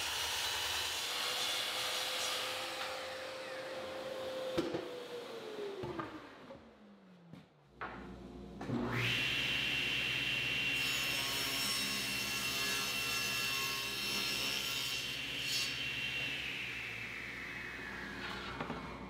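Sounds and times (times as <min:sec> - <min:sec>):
saw blade cutting wood: 0:00.0 - 0:03.7
table saw motor whine: 0:08.7 - 0:14.4, 0:15.2 - 0:19.0.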